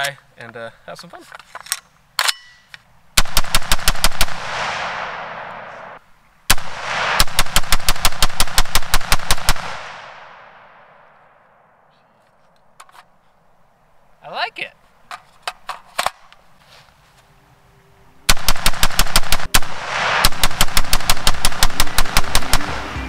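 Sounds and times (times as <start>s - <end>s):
rifle shots with rolling echo: 3.2s - 11.8s, 18.3s - 23.0s.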